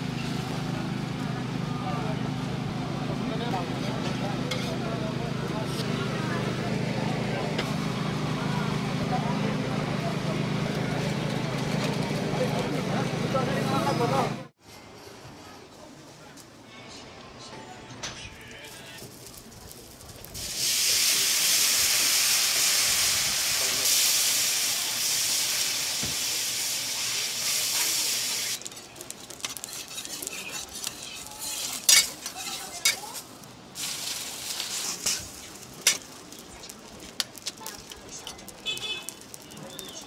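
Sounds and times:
noodles sizzling on a griddle: 18.7 - 40.0
steam hissing: 20.2 - 28.6, 33.7 - 36.3
spatula clicking on griddle: 28.6 - 33.2, 34.5 - 36.2.

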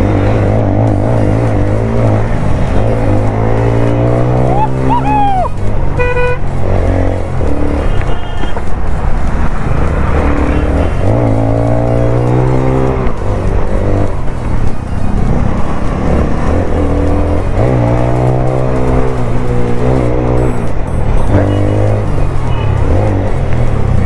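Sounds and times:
motorcycle engine revving: 0.0 - 24.0
short horn beep: 6.0 - 6.4.

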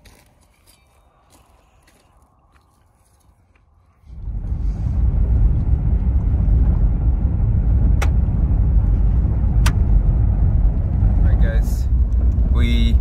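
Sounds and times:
road and engine rumble in car: 4.0 - 13.0.

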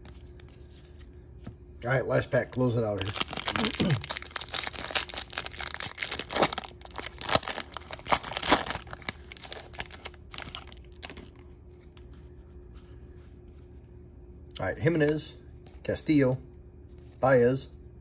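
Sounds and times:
foil wrapper tearing and crinkling: 2.5 - 11.4.

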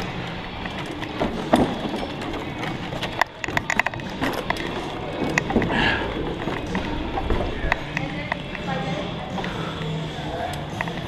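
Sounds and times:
bike tyres clattering on boards: 0.6 - 8.0.

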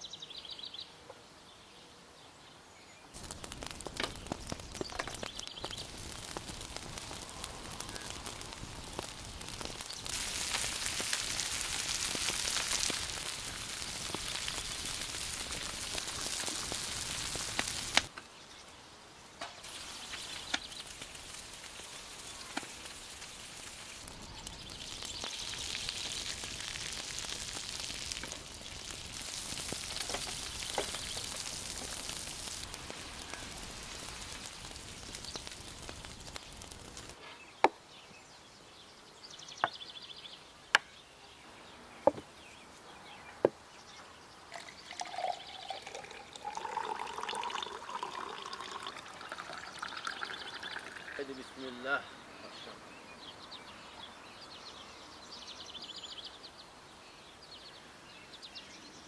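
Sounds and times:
fish sizzling in oil: 3.2 - 18.1, 19.6 - 37.2, 44.6 - 51.3.

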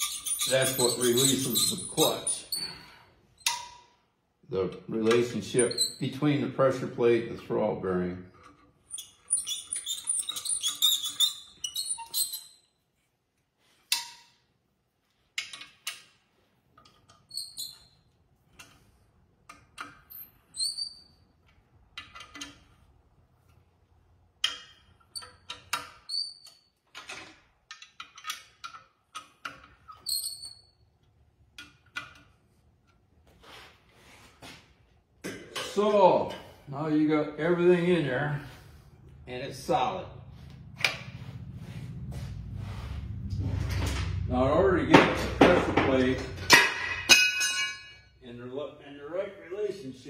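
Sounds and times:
short high squeaks: 0.0 - 2.8, 8.8 - 12.8, 20.0 - 21.3, 29.8 - 30.9.

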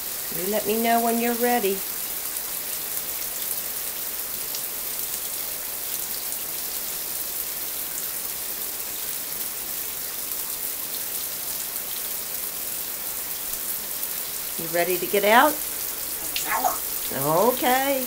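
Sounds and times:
shower water spray hissing: 15.4 - 17.6.

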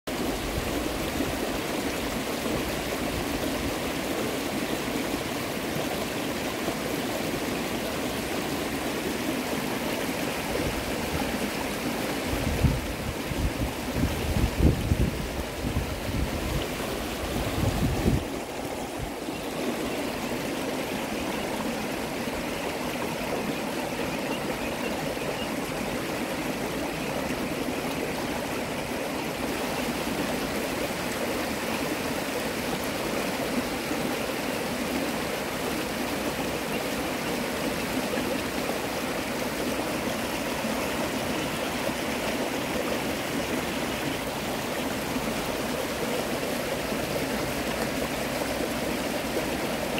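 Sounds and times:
creek water rushing over rocks: 0.1 - 49.9.

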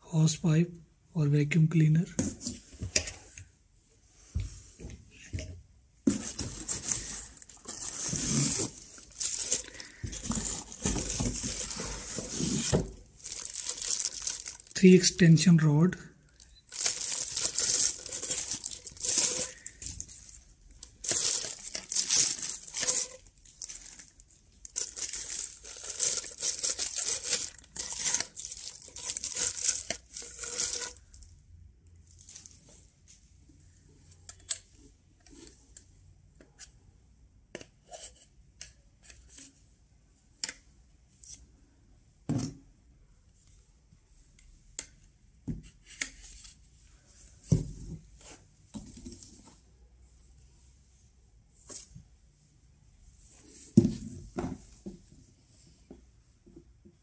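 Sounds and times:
plastic bags crinkling and tearing: 6.6 - 14.9, 16.3 - 31.2.

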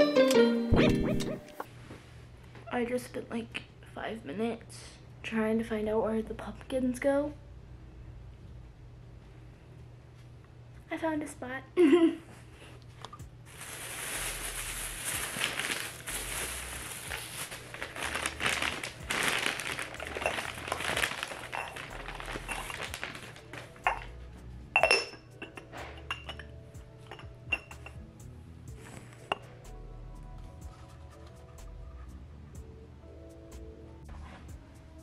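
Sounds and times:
background music: 0.0 - 1.7, 13.2 - 35.0
plastic bags and paper rustling: 13.5 - 24.1
ceramic clink: 23.8 - 24.1, 24.8 - 28.0.

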